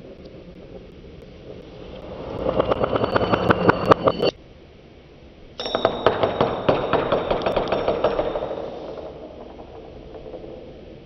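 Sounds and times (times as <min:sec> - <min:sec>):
coin spinning on wood: 0:02.0 - 0:04.3.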